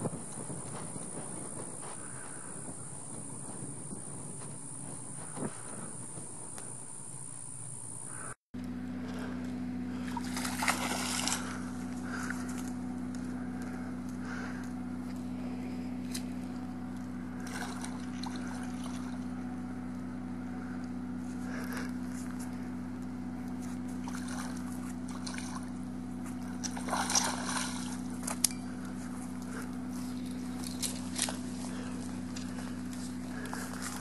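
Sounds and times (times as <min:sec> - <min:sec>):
low hum: 0:00.0 - 0:34.0
water splashing and sloshing: 0:09.9 - 0:12.7, 0:17.4 - 0:19.3, 0:23.7 - 0:28.6.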